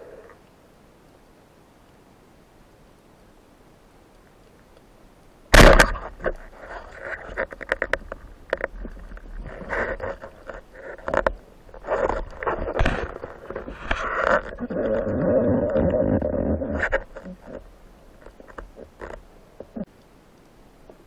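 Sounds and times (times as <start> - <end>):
loud underwater crack: 5.5 - 7.9
gear clicking and knocking underwater: 5.6 - 20.1.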